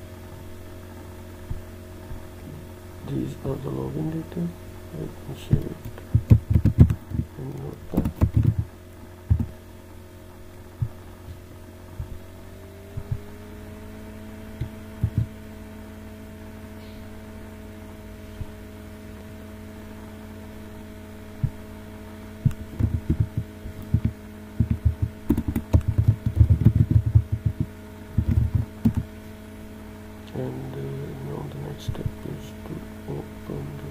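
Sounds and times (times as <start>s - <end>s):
steady multi-tone hum: 0.0s - 33.9s
computer keyboard typing: 5.5s - 8.7s, 9.3s - 9.5s, 15.0s - 15.3s, 22.5s - 29.1s.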